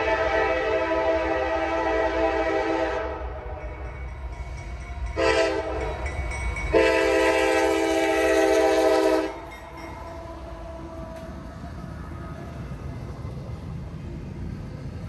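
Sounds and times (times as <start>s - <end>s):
locomotive air horn blasts: 0.0s - 3.6s, 5.2s - 6.0s, 6.7s - 9.5s
low train rumble: 0.0s - 15.0s.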